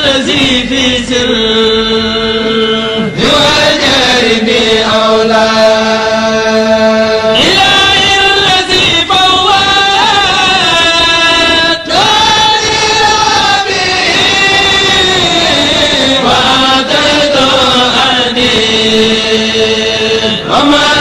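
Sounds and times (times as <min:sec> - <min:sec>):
group chanting in unison: 0:00.0 - 0:21.0.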